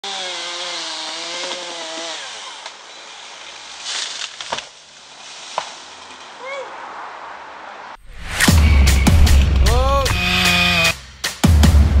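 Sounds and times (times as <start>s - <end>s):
chainsaw revving: 0.0s - 3.4s, 10.1s - 11.0s
rush of noise: 6.8s - 10.4s.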